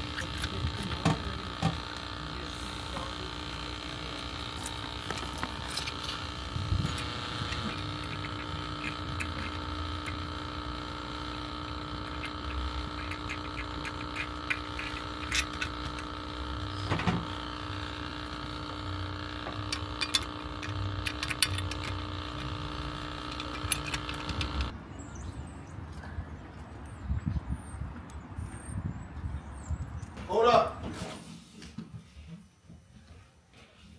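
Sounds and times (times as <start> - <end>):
small motor humming: 0.0 - 24.8.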